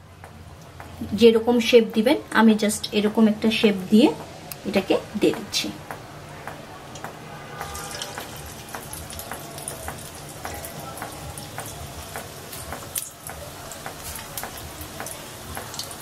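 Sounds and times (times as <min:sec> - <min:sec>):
crackling oil pops: 0:05.4 - 0:16.0
fish frying in hot oil: 0:07.5 - 0:16.0.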